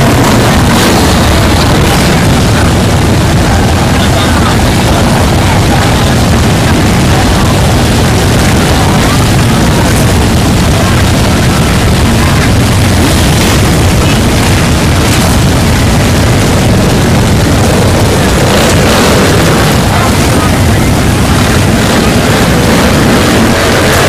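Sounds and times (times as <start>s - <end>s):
crowd voices: 0.0s - 24.0s
motorcycle engines: 0.0s - 24.0s.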